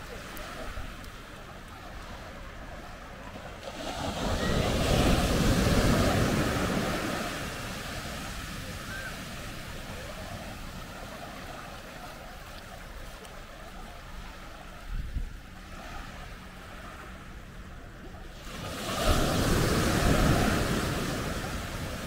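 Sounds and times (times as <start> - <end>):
surf waves breaking on sand: 0.0 - 22.0.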